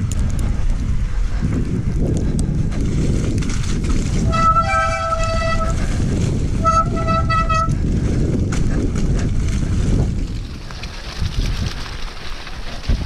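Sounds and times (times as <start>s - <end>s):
bike knocking and rattling: 0.0s - 13.0s
tyres rumbling on rough trail: 0.0s - 13.0s.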